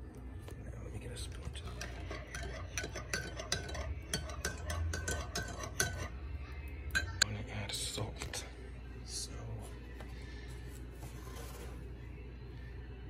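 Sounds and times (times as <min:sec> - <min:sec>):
spoon clinking in ceramic mug: 0:01.7 - 0:06.2.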